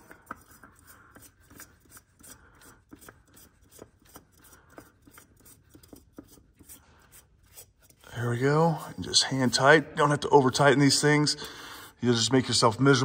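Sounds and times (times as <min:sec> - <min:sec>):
oil filter threading scrapes: 0:00.0 - 0:10.2.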